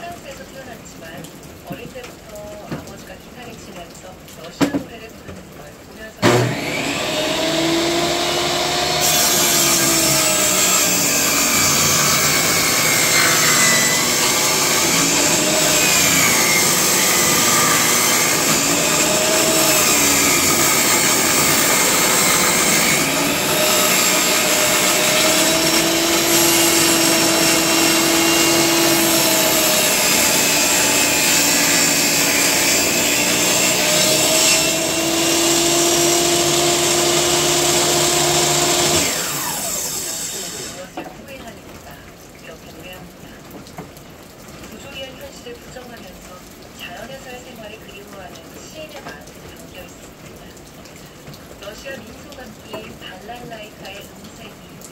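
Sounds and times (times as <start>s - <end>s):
table saw ripping wood: 6.2s - 41.0s.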